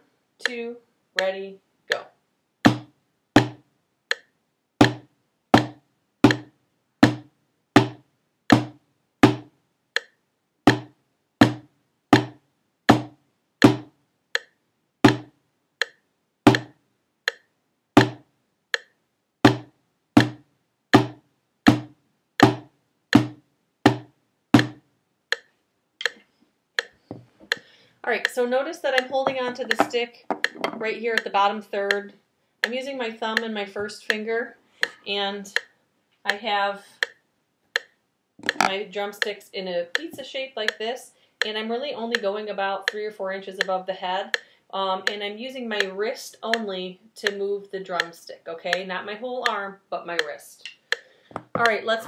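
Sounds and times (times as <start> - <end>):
metronome clicking: 0.4 - 0.6, 4.1 - 5.0, 10.0 - 10.9, 13.6 - 14.6, 15.8 - 17.5, 18.7 - 19.0, 24.6 - 26.2, 26.8 - 35.7, 36.3 - 39.3, 41.4 - 43.0, 43.6 - 49.6, 50.2 - 52.0
drumsticks striking practice pad: 2.7 - 10.1, 10.7 - 11.6, 12.2 - 14.5, 15.1 - 16.7, 18.0 - 18.2, 19.5 - 20.4, 21.0 - 24.8, 29.0 - 30.8, 37.8 - 38.7.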